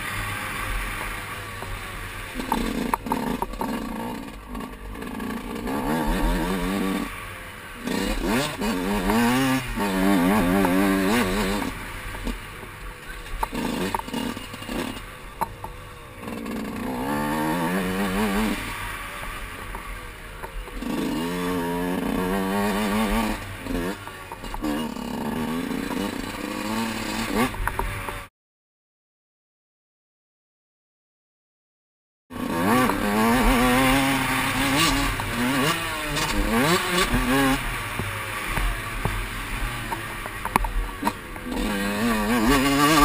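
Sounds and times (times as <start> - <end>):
dirt bike engine revving: 0.0 - 28.3, 32.3 - 43.0.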